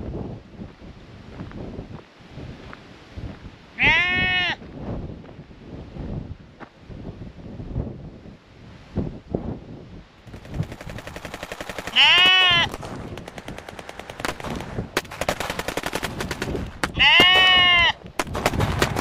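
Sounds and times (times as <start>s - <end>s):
sheep bleating: 3.8s - 4.6s, 11.9s - 12.7s, 16.9s - 18.0s
rapid clicking: 10.3s - 17.3s.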